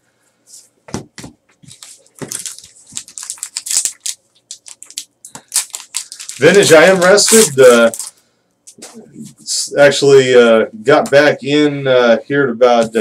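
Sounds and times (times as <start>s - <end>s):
wrapper tearing and crinkling: 1.7s - 8.2s.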